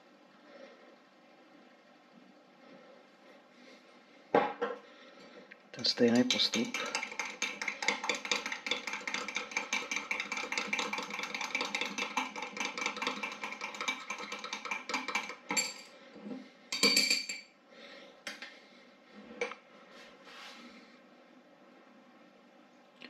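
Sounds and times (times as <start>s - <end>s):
utensil clinking against container: 6.3s - 15.9s.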